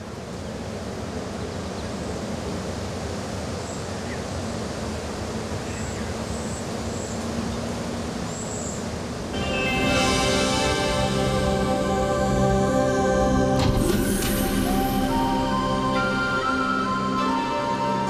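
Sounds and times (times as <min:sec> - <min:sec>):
steady rushing noise: 0:00.0 - 0:18.0
music with sustained notes: 0:09.3 - 0:18.0.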